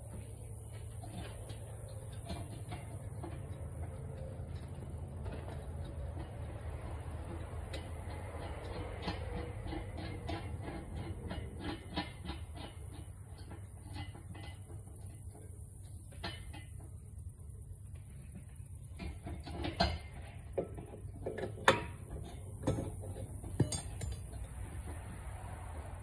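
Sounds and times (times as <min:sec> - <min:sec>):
metal clicks on lug nuts: 0:19.0 - 0:25.4.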